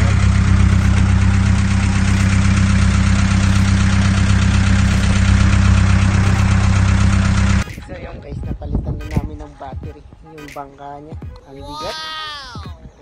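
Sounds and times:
boat engine idling: 0.0s - 7.6s.

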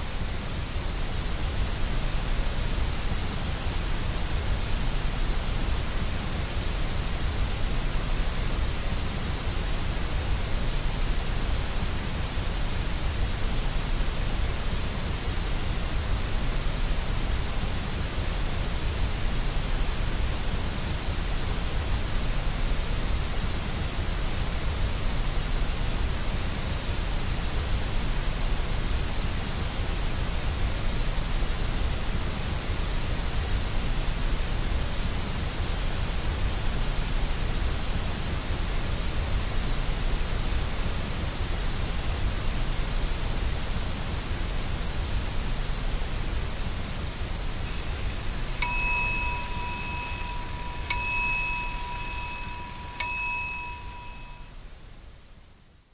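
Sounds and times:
white noise hiss: 0.0s - 55.9s
soft bell strikes: 48.6s - 54.5s.

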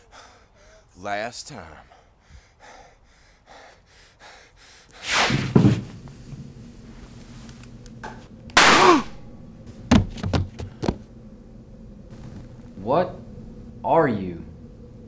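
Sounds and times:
low steady hum: 5.8s - 15.0s
loud sudden hits: 8.6s - 9.3s.

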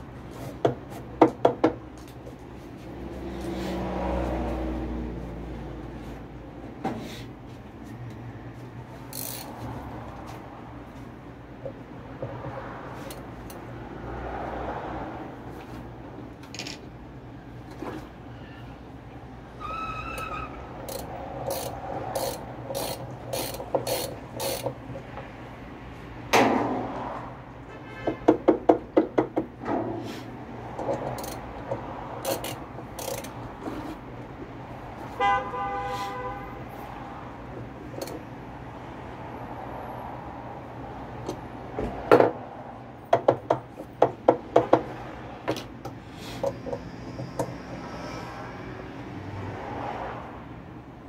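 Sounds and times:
ratchet wrench clicking: 9.1s - 9.6s, 20.2s - 24.8s, 30.8s - 33.4s
vehicle horn: 27.7s - 28.3s, 35.2s - 36.7s.

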